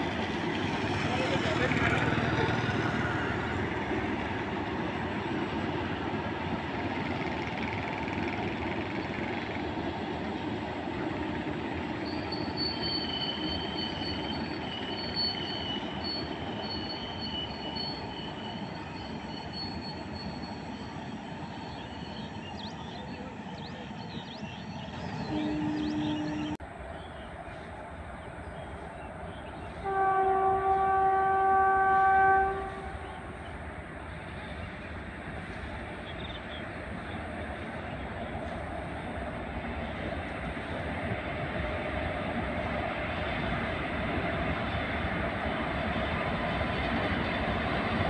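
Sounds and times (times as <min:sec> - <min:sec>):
train wheels rumbling on rails: 0:00.0 - 0:48.0
high wheel squeal: 0:12.0 - 0:22.4.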